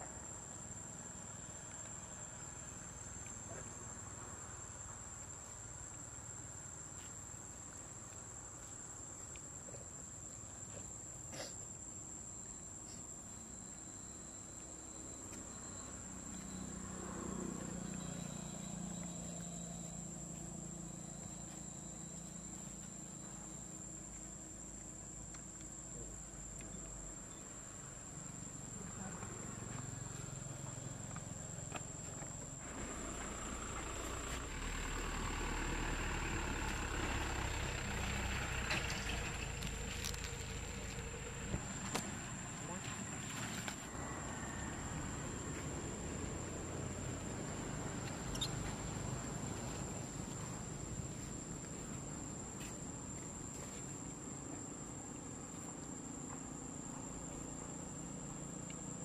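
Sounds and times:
outdoor background noise: 0.0s - 59.0s
high-pitched insect buzz: 48.1s - 48.9s.

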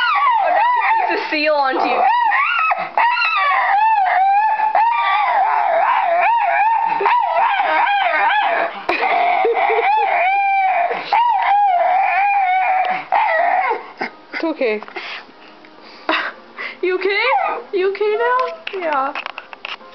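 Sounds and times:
small dog whine-howling: 0.0s - 13.8s.

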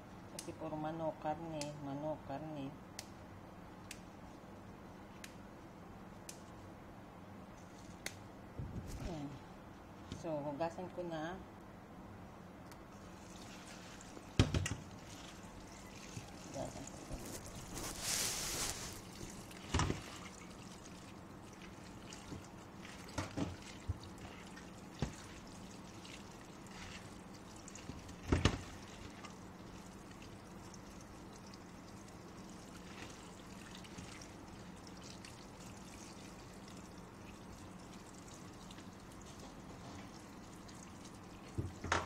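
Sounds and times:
tap water pouring into colander: 13.0s - 42.0s.

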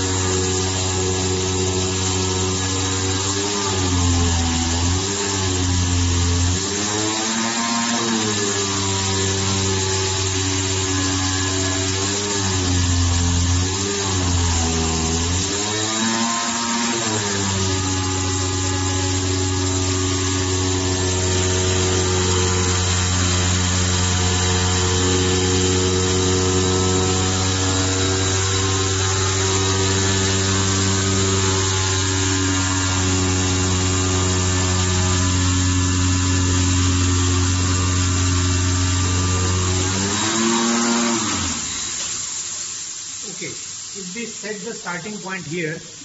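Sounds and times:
cutting machine humming: 0.0s - 46.0s.

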